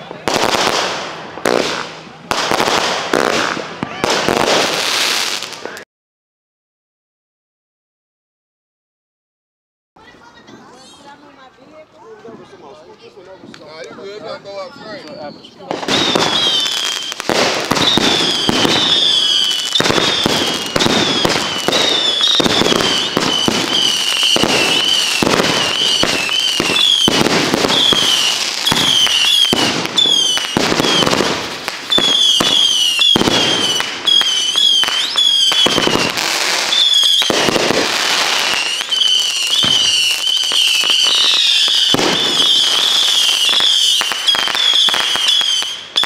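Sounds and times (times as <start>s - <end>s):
firework bangs: 0.0s - 5.8s, 15.4s - 46.0s
falling firework whistles: 15.1s - 46.0s.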